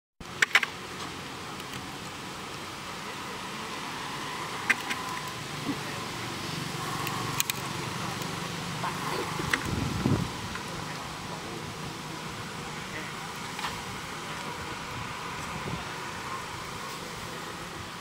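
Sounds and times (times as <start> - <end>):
steady background noise: 0.2 - 18.0
vehicle engine rumbling: 0.2 - 18.0
sharp clicks: 7.0 - 8.3.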